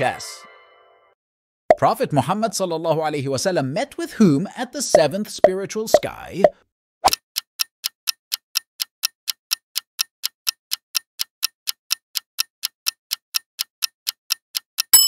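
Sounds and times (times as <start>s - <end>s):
countdown timer ticking: 4.9s - 6.2s, 7.4s - 15.0s.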